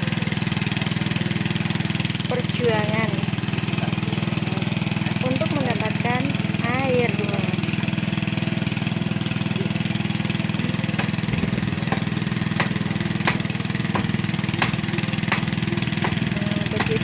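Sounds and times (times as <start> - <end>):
water pump engine running: 0.0 - 17.0
plank knocking on pipe: 10.9 - 17.0.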